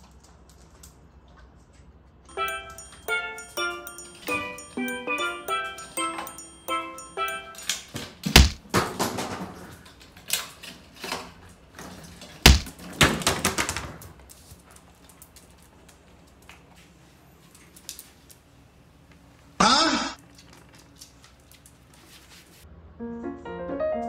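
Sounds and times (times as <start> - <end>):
plastic bottles clattering on wooden floor: 8.0 - 14.1.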